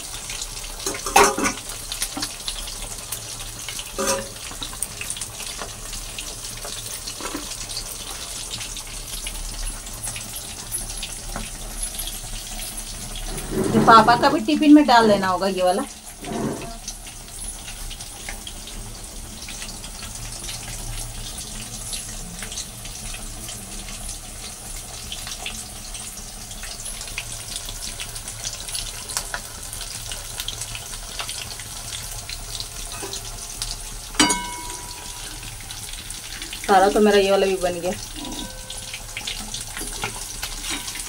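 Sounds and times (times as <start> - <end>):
deep-frying sizzle: 0.0 - 41.0
metal spoon clinking on pan: 32.9 - 33.3, 34.2 - 35.4, 38.1 - 41.0.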